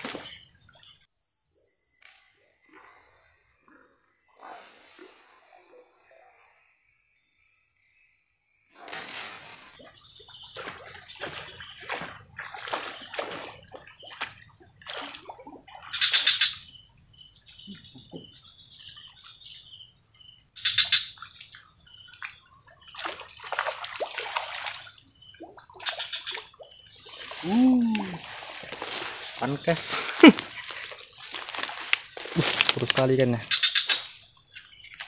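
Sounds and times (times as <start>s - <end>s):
splashing on water surface: 0.0s - 0.4s, 8.9s - 16.3s, 22.9s - 25.0s, 25.8s - 34.2s.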